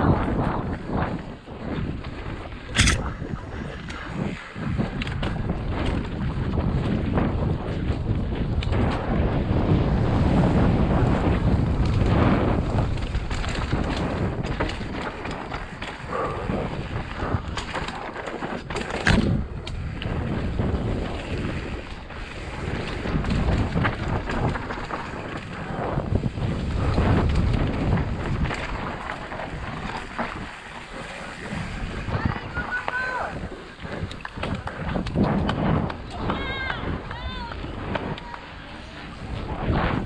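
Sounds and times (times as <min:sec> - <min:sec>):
bike rattling and knocking: 0:00.0 - 0:40.0
wind rushing over microphone: 0:00.0 - 0:40.0
tyres rolling on gravel: 0:09.7 - 0:40.0.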